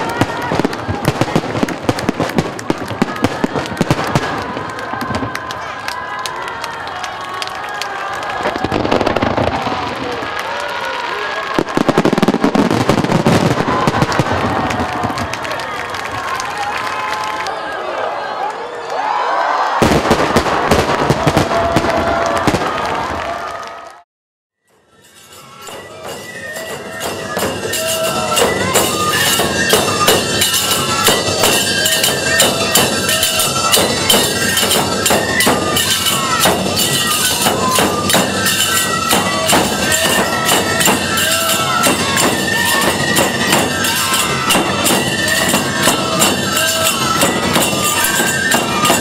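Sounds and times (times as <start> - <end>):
drums: 0.0 - 10.4, 11.4 - 17.2, 24.6 - 49.0
shrill bamboo flutes: 24.7 - 49.0
hand cymbals clattering: 24.9 - 49.0.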